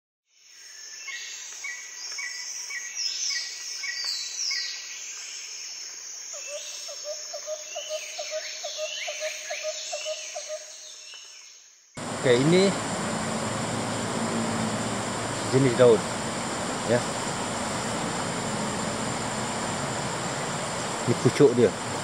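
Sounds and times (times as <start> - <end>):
birds calling in whistled sweeps: 0.6 - 22.0
insects droning: 12.0 - 22.0.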